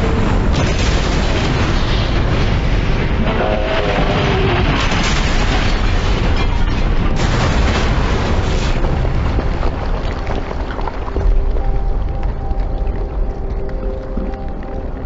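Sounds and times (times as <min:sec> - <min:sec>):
sharp explosion cracks: 0:00.0 - 0:10.9
bomb explosion rumble: 0:00.0 - 0:12.4.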